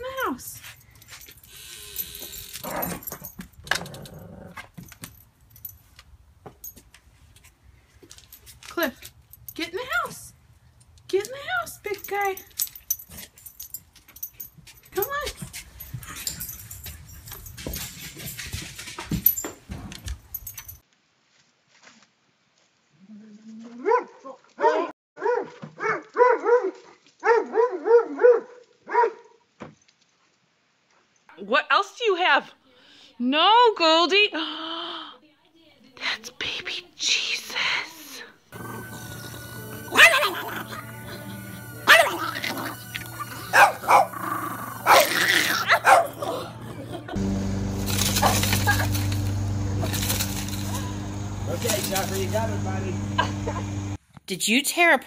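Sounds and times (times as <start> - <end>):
dog collar tags jingling: 0.1 - 7.0, 8.1 - 10.0, 10.8 - 20.8
dog barking: 23.8 - 29.4, 39.9 - 40.8, 41.8 - 42.4, 43.1 - 44.2, 44.8 - 46.6, 48.1 - 49.0.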